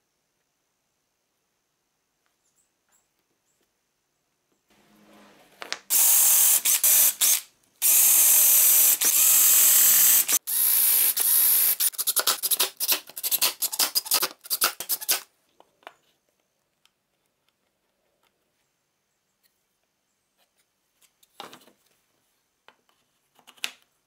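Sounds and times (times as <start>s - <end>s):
cordless drill boring into wood: 5.9s - 12.6s.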